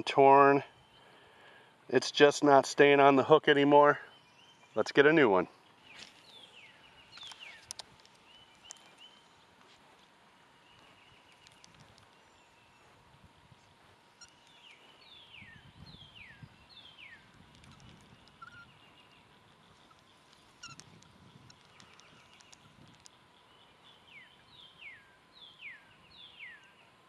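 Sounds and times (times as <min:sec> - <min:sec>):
light clicks: 0:10.7 - 0:12.2, 0:19.9 - 0:23.2
bird chattering trill: 0:14.2 - 0:19.2, 0:20.6 - 0:22.7.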